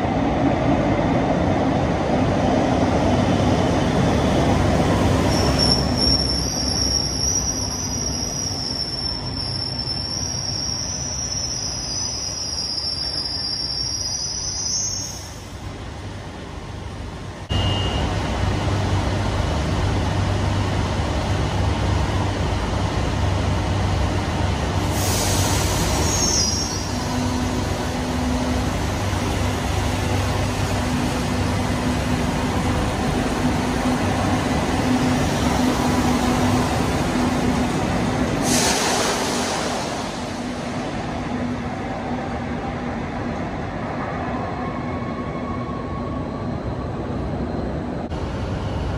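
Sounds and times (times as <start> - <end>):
train wheel squeal: 5.1 - 15.4, 17.5 - 18.2, 25.0 - 28.3
train wheels rumbling on rails: 15.3 - 44.0.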